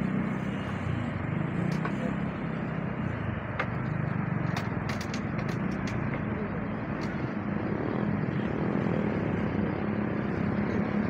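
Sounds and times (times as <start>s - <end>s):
diesel locomotive engine drone: 0.0s - 11.0s.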